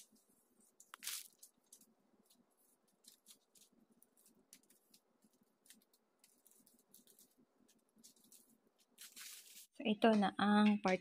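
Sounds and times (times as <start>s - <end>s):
plastic snack packets crinkling: 0.8s - 9.8s.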